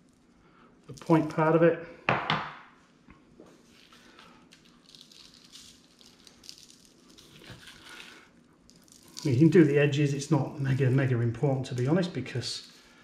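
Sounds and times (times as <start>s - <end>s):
salt grains pattering: 3.6s - 13.0s.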